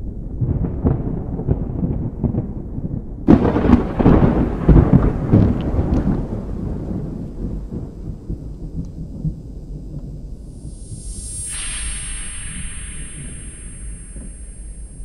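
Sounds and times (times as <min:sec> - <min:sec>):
thunderclap rumbling: 0:00.3 - 0:15.0
steady rain: 0:01.3 - 0:12.4.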